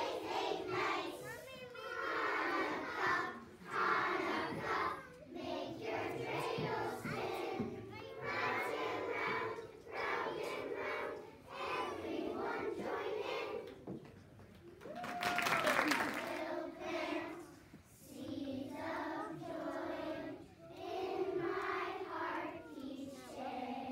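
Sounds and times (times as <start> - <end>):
children's choir singing: 0.0 - 14.0, 15.8 - 23.9.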